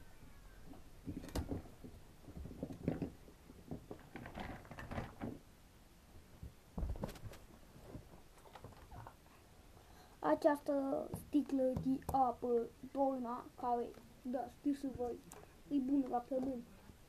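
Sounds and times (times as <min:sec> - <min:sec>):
household objects knocking and rustling: 0:00.7 - 0:05.4, 0:06.4 - 0:09.2.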